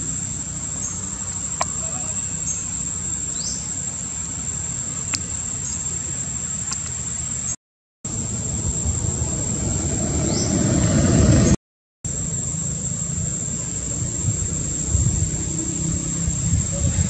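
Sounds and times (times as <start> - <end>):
high-pitched insect drone: 0.0 - 11.5, 12.1 - 17.0
low rumble: 8.1 - 17.0.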